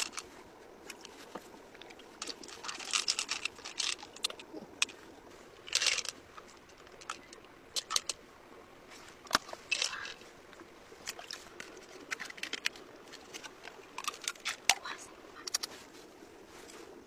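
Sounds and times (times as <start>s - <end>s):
shells clicking on rock: 1.8s - 5.0s, 5.6s - 8.2s.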